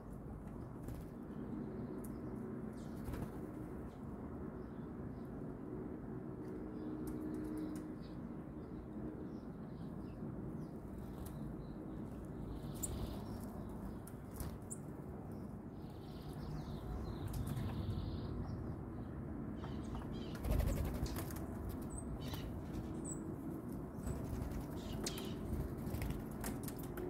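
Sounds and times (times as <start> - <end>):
bird wings fluttering: 3.0 - 3.5, 20.4 - 21.8, 24.1 - 27.0.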